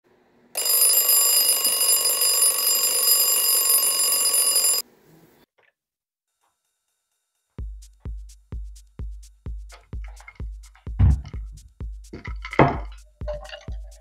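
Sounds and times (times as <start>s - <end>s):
bell alarm clock ringing: 0.6s - 4.8s.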